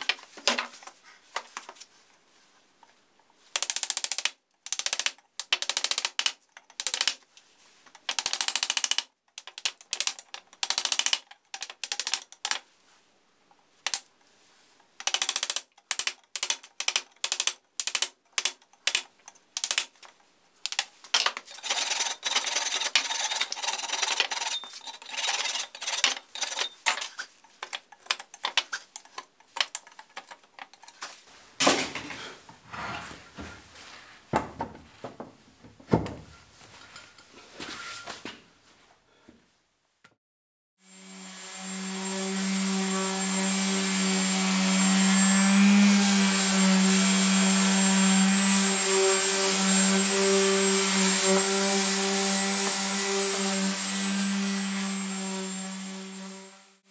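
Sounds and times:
chisel scraping wood: 0:21.5 - 0:31.1.

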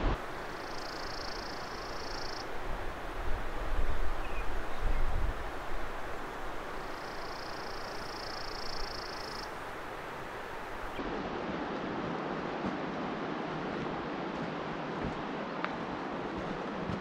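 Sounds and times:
rushing outdoor ambience: 0:00.0 - 0:17.0.

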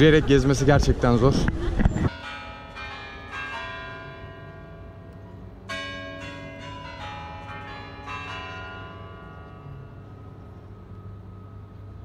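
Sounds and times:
clock tower bells chiming: 0:02.1 - 0:12.0.

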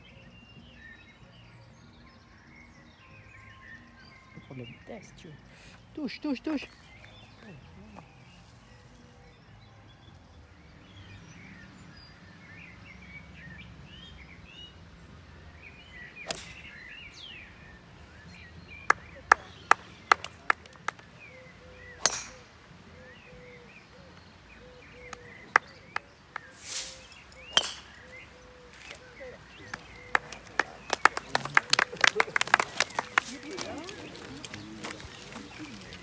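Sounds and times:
birds singing: 0:00.0 - 0:36.0
club striking golf ball: 0:16.2 - 0:16.7, 0:22.0 - 0:22.4, 0:27.5 - 0:28.1.

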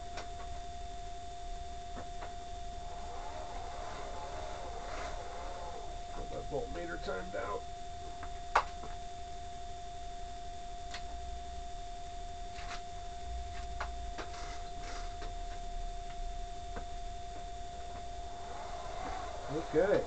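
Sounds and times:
high-pitched electronic whine: 0:00.0 - 0:20.0
low rumble: 0:11.2 - 0:20.0.

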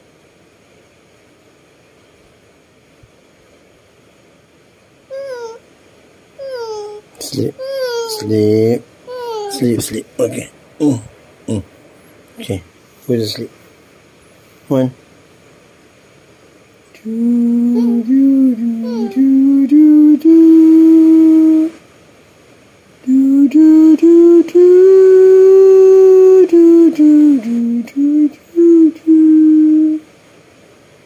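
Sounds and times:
person humming a lullaby: 0:05.1 - 0:05.6, 0:06.4 - 0:11.6, 0:16.9 - 0:21.8, 0:23.0 - 0:30.1.

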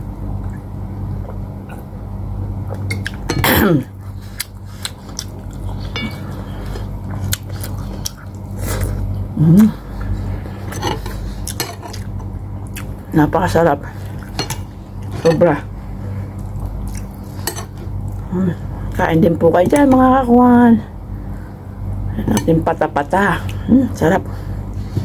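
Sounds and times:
short hummed sound: 0:00.0 - 0:19.0
steady low hum: 0:00.0 - 0:25.0
chewing: 0:04.3 - 0:09.0, 0:09.6 - 0:13.0, 0:16.3 - 0:17.4
spoon clinking on plates: 0:05.9 - 0:06.3.

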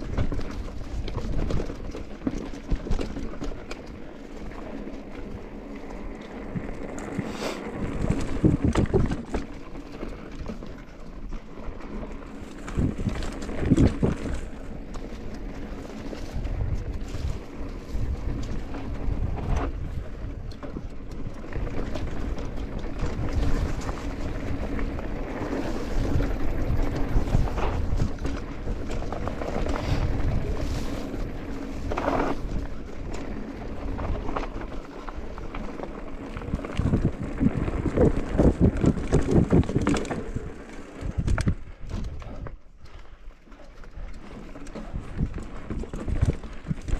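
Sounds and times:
bike knocks and rattles: 0:00.0 - 0:05.8, 0:07.8 - 0:10.7, 0:11.5 - 0:42.6, 0:43.9 - 0:46.9
bike tyres rumbling on dirt: 0:00.0 - 0:46.9
wind buffeting microphone: 0:06.4 - 0:09.4, 0:12.6 - 0:42.9.

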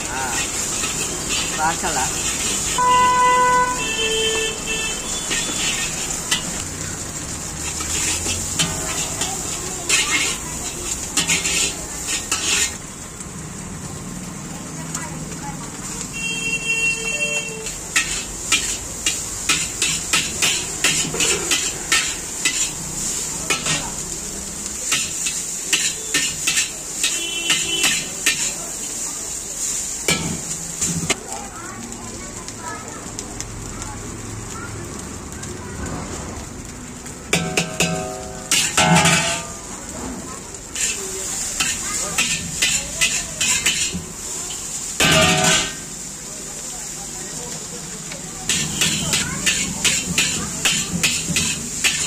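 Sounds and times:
stir-fry hissing in a wok: 0:00.0 - 0:52.0
vehicle horns honking: 0:02.8 - 0:05.8, 0:16.1 - 0:17.8, 0:27.0 - 0:28.1
ladle clinking against wok: 0:37.4 - 0:39.6.

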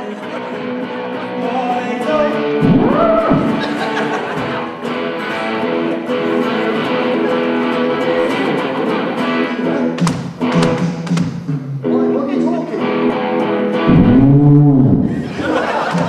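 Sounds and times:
electric guitar strumming chords: 0:00.0 - 0:15.5
sharp guitar hits: 0:02.5 - 0:05.2, 0:13.0 - 0:15.3.

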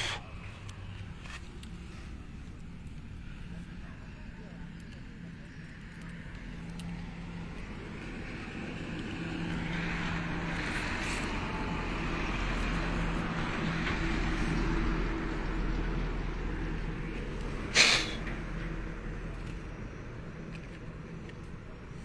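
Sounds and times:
low engine hum: 0:00.0 - 0:22.0
vehicle passing: 0:04.6 - 0:22.0.

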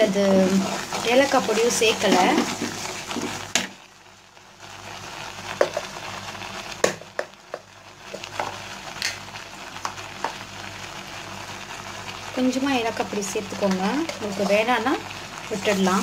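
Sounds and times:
milk bubbling and sizzling in pan: 0:00.0 - 0:16.0
spatula scraping pan: 0:00.5 - 0:03.5, 0:13.7 - 0:14.7.

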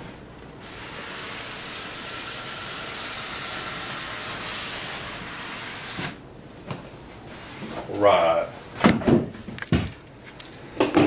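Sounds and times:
cardboard scraping on styrofoam: 0:00.6 - 0:06.2.

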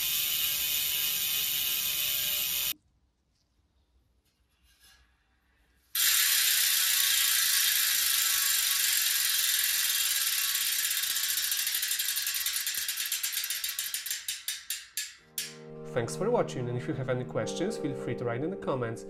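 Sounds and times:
bike hubs freewheeling clicking: 0:00.0 - 0:02.8, 0:06.0 - 0:15.5.

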